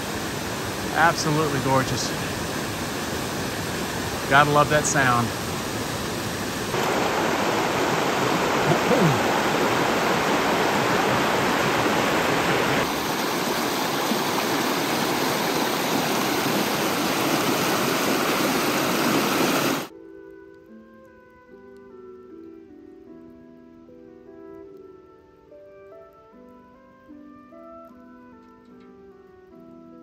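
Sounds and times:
roaring waterfall: 0:00.0 - 0:19.9.

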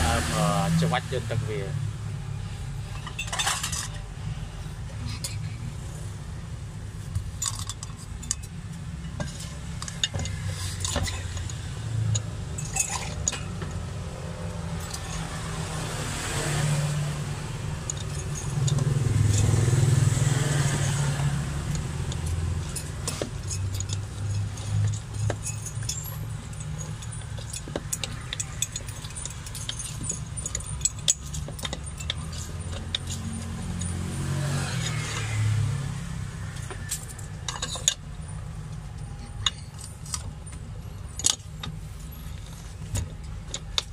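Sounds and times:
low rumble of street traffic: 0:00.0 - 0:43.9
metal clinks of lime press and utensils: 0:03.0 - 0:04.0, 0:07.4 - 0:13.7, 0:17.8 - 0:19.6, 0:21.7 - 0:34.0, 0:36.6 - 0:38.1, 0:39.0 - 0:43.9.

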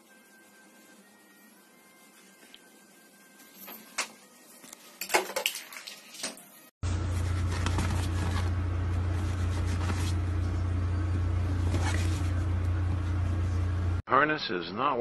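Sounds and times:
loud steady low hum: 0:06.8 - 0:14.0.

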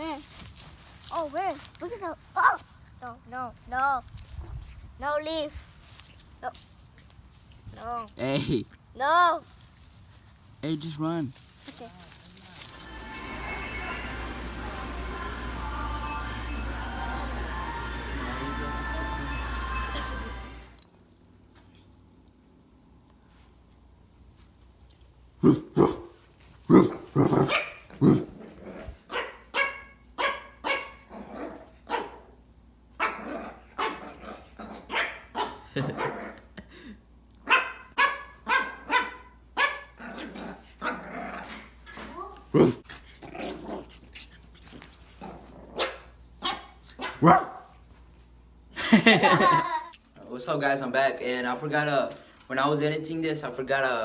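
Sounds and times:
puppy yapping: 0:29.1 - 0:32.2, 0:33.0 - 0:36.4, 0:37.4 - 0:42.8, 0:45.7 - 0:47.6.

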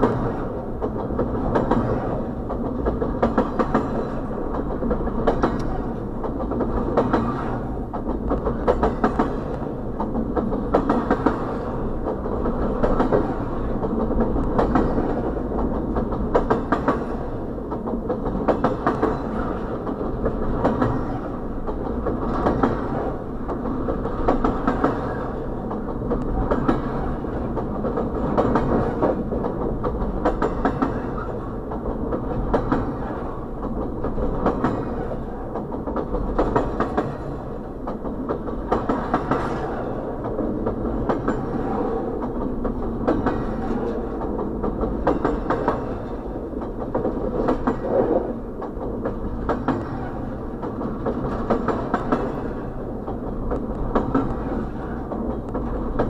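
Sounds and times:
steel wheels rumbling on rail: 0:00.0 - 0:56.0
wheels clicking over rail joints: 0:00.0 - 0:56.0.

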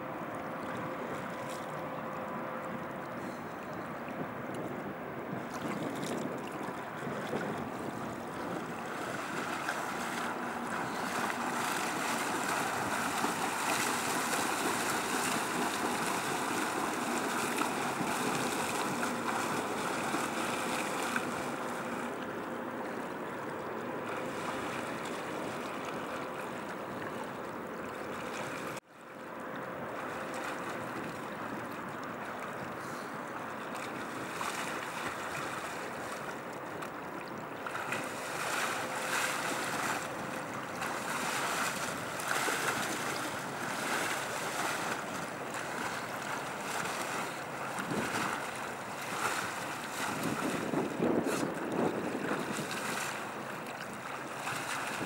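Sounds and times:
river water lapping: 0:00.0 - 0:55.0
wind on microphone: 0:04.0 - 0:20.2, 0:47.8 - 0:53.3.

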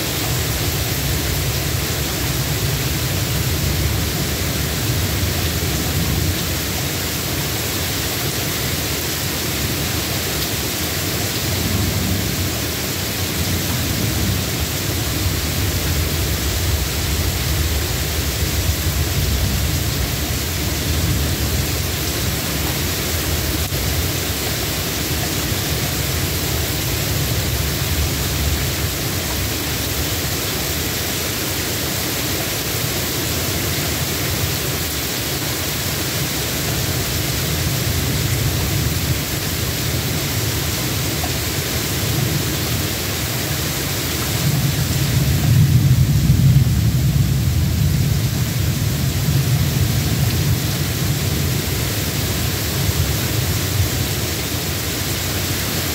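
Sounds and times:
steady rain falling: 0:00.0 - 0:55.9
distant thunder rumbling: 0:44.4 - 0:51.5.

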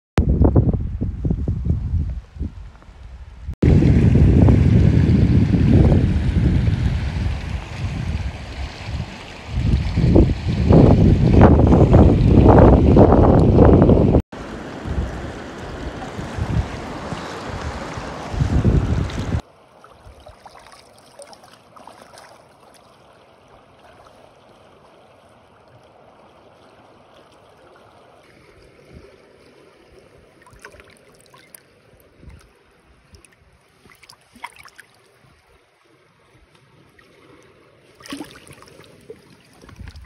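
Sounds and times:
river water flowing and lapping: 0:02.6 - 0:40.0
splashes and knocks in water: 0:15.0 - 0:25.0, 0:28.2 - 0:31.6, 0:33.1 - 0:35.2, 0:36.5 - 0:40.0.

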